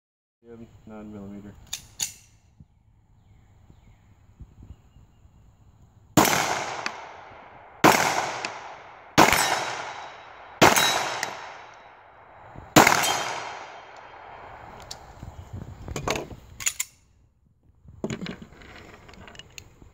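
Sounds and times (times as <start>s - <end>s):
pistol shots echoing: 6.2s - 14.4s.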